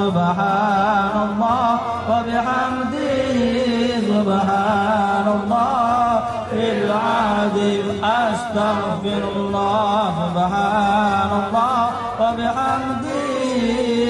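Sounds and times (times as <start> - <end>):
men chanting devotional melody: 0.0 - 14.0.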